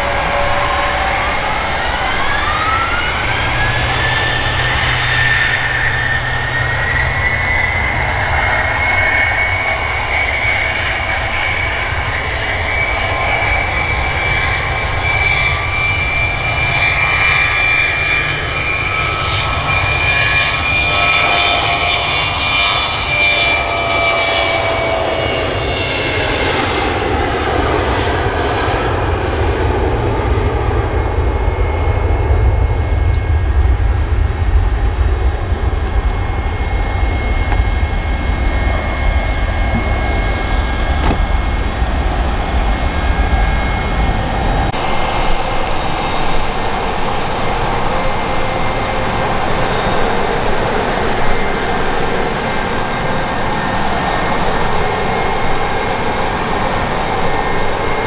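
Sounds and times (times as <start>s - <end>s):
aircraft engine noise: 0.0s - 58.0s
jet engines whining and roaring: 0.0s - 58.0s.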